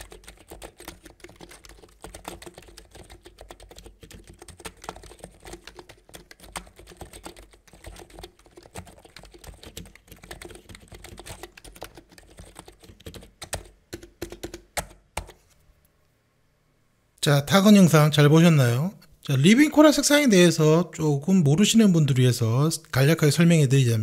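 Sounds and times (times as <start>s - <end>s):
typing on keyboard: 0.0s - 15.4s.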